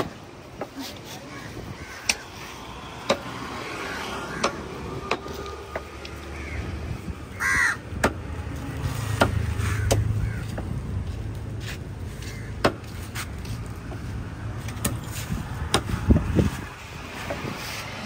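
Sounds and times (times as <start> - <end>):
crow cawing: 1.3 - 2.4, 3.9 - 4.6, 6.2 - 7.8, 9.6 - 10.6, 12.2 - 12.6.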